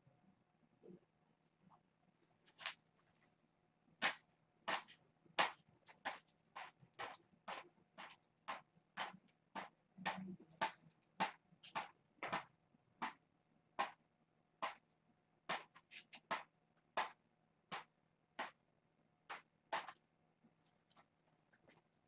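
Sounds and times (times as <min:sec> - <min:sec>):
faint steady hum: 0:00.0 - 0:15.6.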